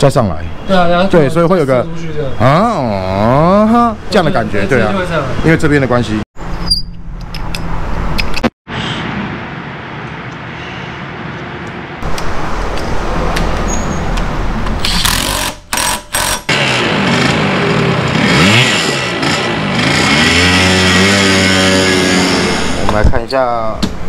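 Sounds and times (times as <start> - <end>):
two-stroke engine revving: 14.9 - 22.9.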